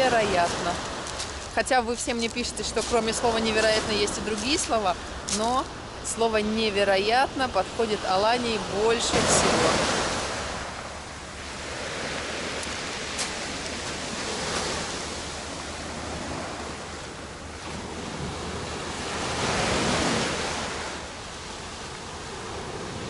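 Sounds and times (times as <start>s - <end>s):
sea waves breaking on pebble beach: 0.0s - 5.8s, 11.4s - 23.0s.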